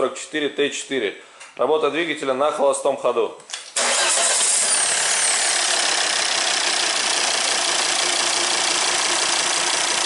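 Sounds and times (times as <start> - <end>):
diesel engine idling: 4.6 - 10.0.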